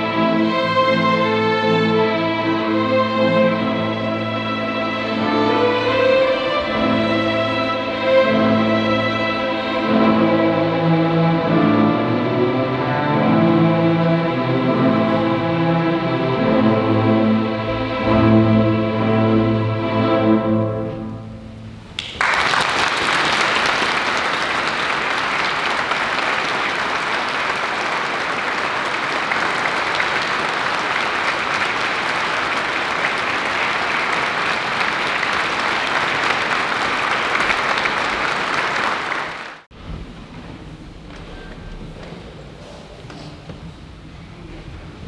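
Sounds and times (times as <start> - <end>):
string ensemble chord: 0.0 - 21.9
audience applause: 22.0 - 39.7.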